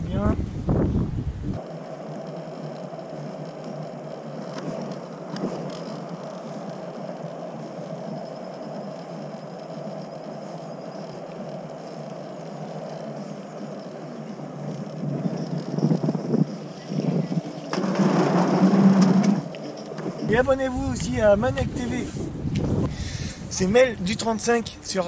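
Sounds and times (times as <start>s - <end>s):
scooter wheels on concrete: 1.6s - 22.2s.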